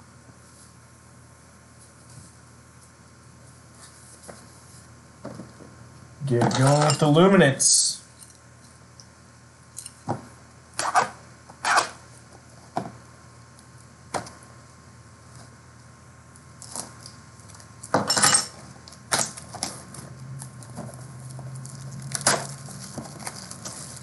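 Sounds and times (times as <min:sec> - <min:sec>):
card wrapper crinkling: 0:20.4 - 0:24.0.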